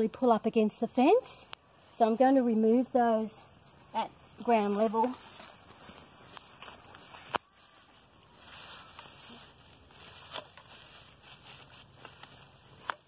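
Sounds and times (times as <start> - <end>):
loppers snipping canes: 12.0 - 13.0.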